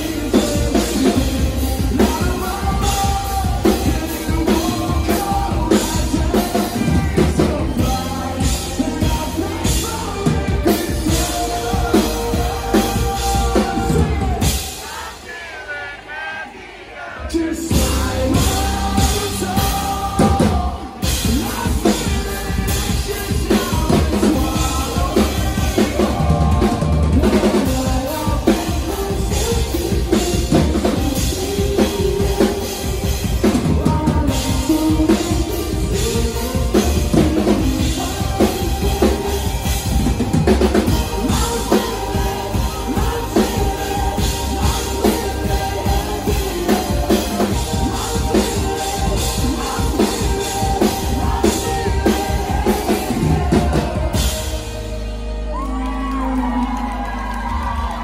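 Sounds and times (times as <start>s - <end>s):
person singing: 0.0s - 58.0s
pounding drum kit: 0.0s - 58.0s
electric guitar: 17.6s - 58.0s.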